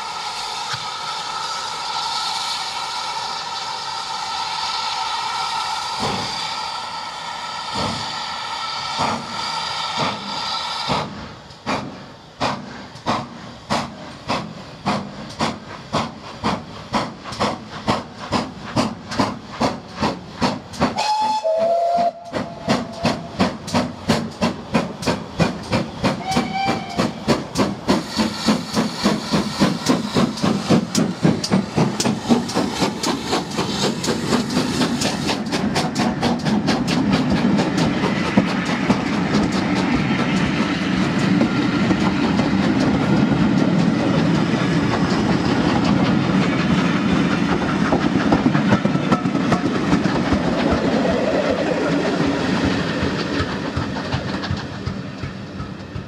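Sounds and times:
steam whistling: 0:00.0 - 0:13.0, 0:20.4 - 0:43.4
steam locomotive chuffing: 0:00.0 - 0:56.0.

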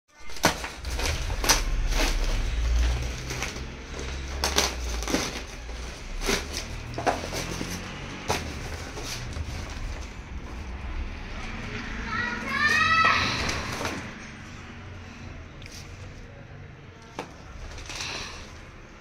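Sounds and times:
plastic wrapping tearing and crumpling: 0:00.1 - 0:10.3, 0:17.5 - 0:18.7
low rumble: 0:00.6 - 0:15.4.

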